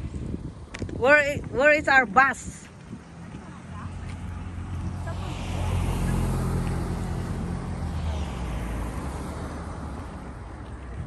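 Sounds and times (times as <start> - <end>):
vehicle engine rumble passing: 2.9 - 11.0.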